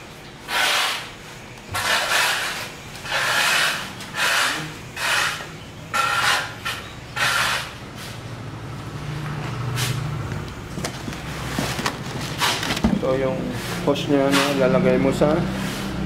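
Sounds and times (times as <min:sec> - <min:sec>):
plastic and cardboard rustling: 0:10.6 - 0:13.4.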